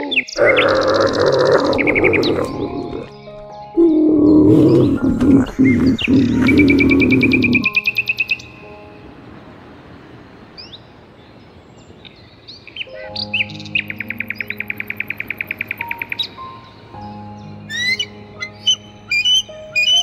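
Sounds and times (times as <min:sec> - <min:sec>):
soft background music: 0:00.0 - 0:20.0
eagle high chirps: 0:17.7 - 0:20.0.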